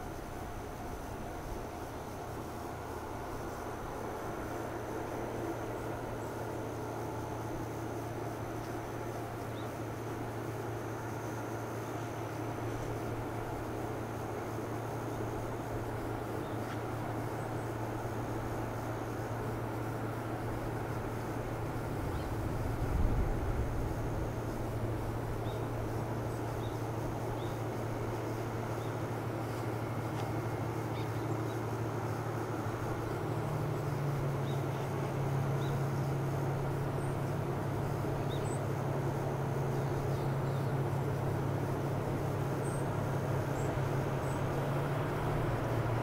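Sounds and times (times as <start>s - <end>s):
diesel train engine droning: 0.0s - 46.0s
low hum and rumble: 0.0s - 46.0s
wind buffeting microphone: 22.0s - 24.4s.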